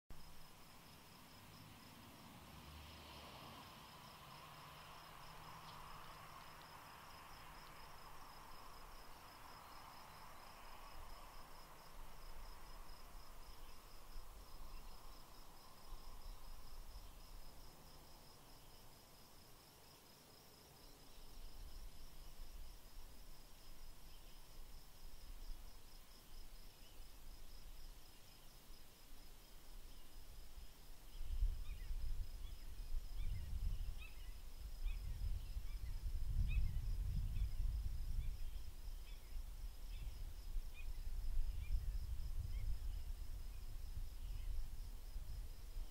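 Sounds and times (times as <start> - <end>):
wind rumble on microphone: 30.2 - 45.9.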